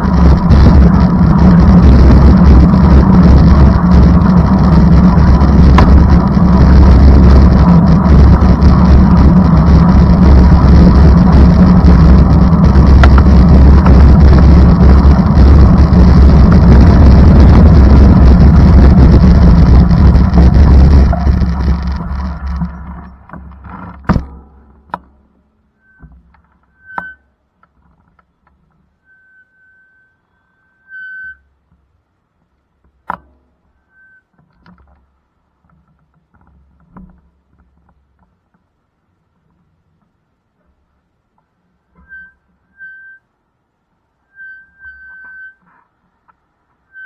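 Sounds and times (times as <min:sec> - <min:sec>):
wind buffeting microphone: 0:00.0 - 0:24.2
vehicle rumble: 0:00.0 - 0:47.0
high whistle-like tones: 0:25.8 - 0:27.3, 0:29.0 - 0:31.5, 0:33.8 - 0:34.4, 0:42.0 - 0:43.3, 0:44.2 - 0:45.6.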